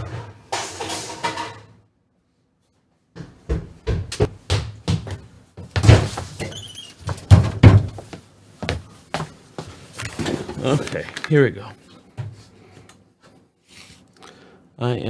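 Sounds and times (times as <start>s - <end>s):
objects knocking and thudding: 3.2s - 8.1s, 10.0s - 11.0s.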